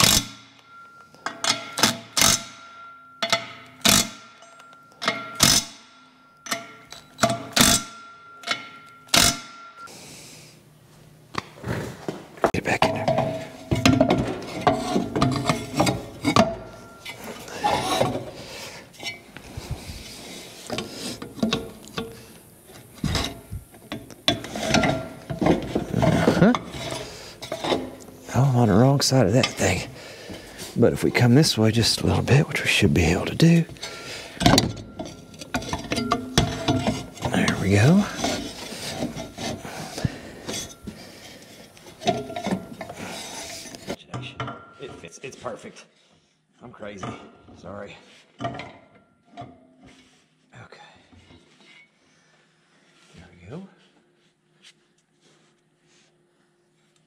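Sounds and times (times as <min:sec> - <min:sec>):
plastic parts scraping and clunking: 0:22.8 - 0:28.2, 0:32.0 - 0:44.0.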